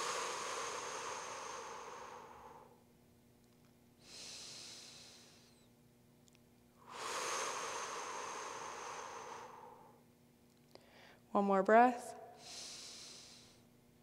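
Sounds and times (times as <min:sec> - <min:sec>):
woman breathing deeply: 0:00.0 - 0:02.9, 0:04.0 - 0:05.7, 0:06.8 - 0:10.0, 0:10.7 - 0:11.3, 0:12.3 - 0:13.7.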